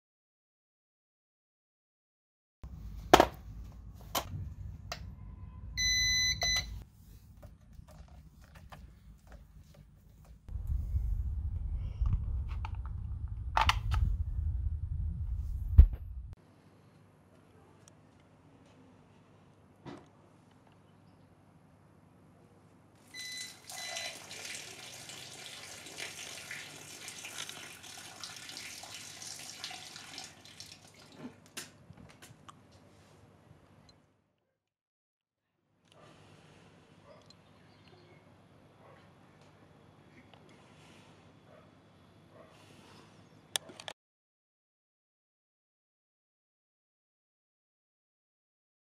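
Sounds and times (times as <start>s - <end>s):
ups beeping: 5.8s - 6.8s.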